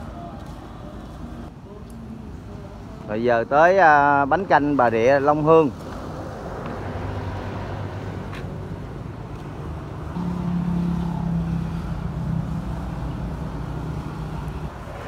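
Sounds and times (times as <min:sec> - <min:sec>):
road noise: 0:00.0 - 0:15.0
car engine hum: 0:06.0 - 0:15.0.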